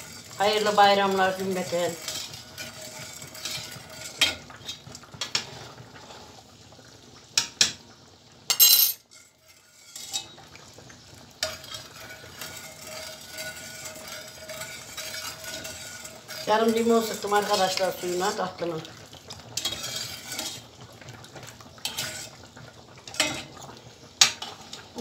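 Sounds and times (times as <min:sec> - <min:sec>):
soft simmering hiss: 0:00.0 - 0:25.0
metal ladle clinking on steel pot: 0:08.5 - 0:09.0.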